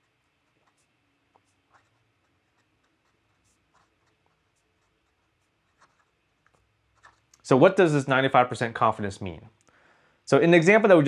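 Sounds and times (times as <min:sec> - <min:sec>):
pen nib scratching on paper: 0:00.0 - 0:07.4.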